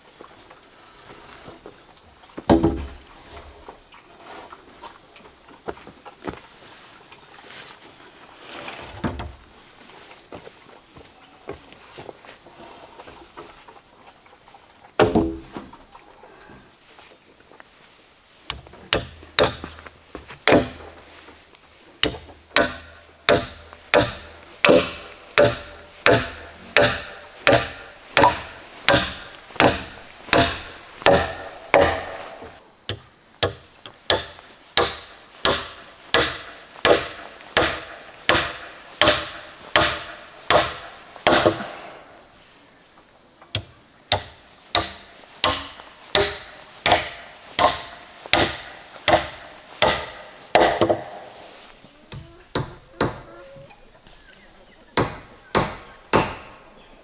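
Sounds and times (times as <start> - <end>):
wood chopping strokes: 18.4 - 21.4, 22.0 - 42.0, 43.6 - 53.3, 55.0 - 56.6.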